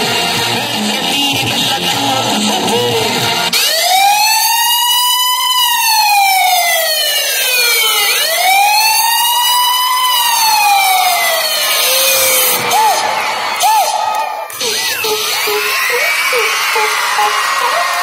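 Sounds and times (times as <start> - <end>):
music: 0.0 - 3.6
wailing siren: 3.5 - 18.0.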